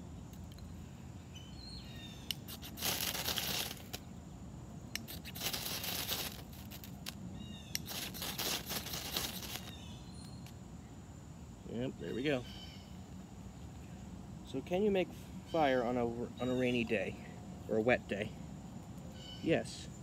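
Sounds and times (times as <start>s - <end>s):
knife scraping ferrocerium rod: 2.3s - 4.0s, 5.0s - 9.7s.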